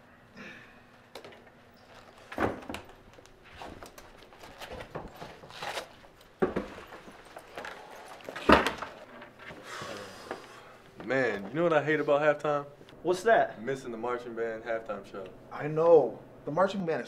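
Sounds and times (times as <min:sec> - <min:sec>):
helmets knocking against wooden lockers: 0:03.8 - 0:09.4.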